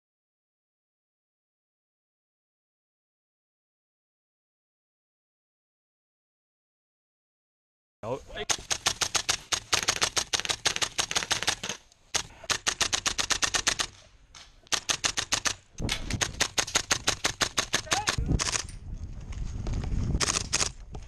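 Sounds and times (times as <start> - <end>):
airsoft rifle firing full auto: 8.5 - 14.0.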